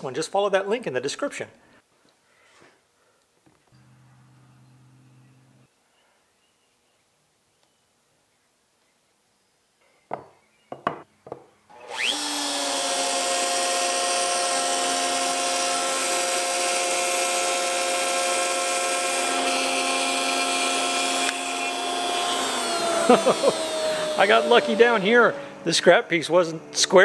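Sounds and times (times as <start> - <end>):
router whining while cutting: 11.7 - 26.0.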